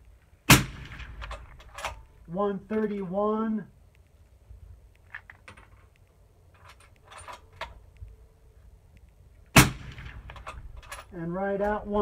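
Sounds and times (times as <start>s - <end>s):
suppressed rifle shot: 0.5s - 2.1s, 9.5s - 10.9s
light clicks of round handling: 1.2s - 9.5s.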